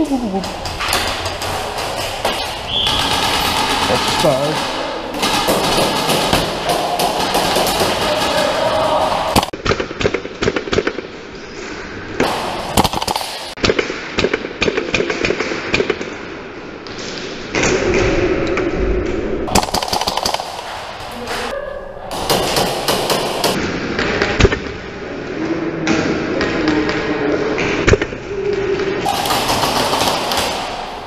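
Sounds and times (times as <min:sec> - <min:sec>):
airsoft rifles firing: 0:00.6 - 0:11.0, 0:12.2 - 0:16.0, 0:19.5 - 0:21.5, 0:22.1 - 0:23.6, 0:29.0 - 0:31.0.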